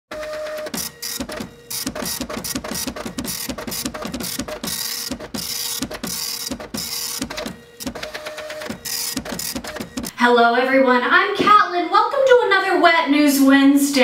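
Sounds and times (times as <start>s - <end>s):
rhythmic teletype clatter: 0.1s - 10.1s.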